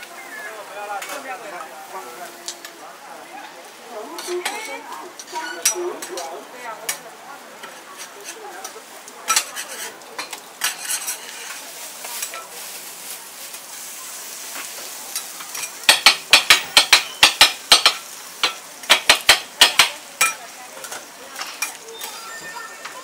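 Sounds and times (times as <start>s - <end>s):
food sizzling on a griddle: 0.0s - 23.0s
metal spatula scraping and tapping: 1.0s - 1.2s, 7.6s - 12.5s, 14.6s - 22.2s
blade chopping on griddle: 15.5s - 20.4s.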